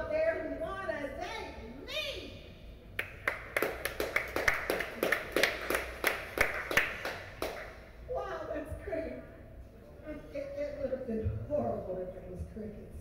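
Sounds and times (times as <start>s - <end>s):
people clapping: 3.0s - 7.8s.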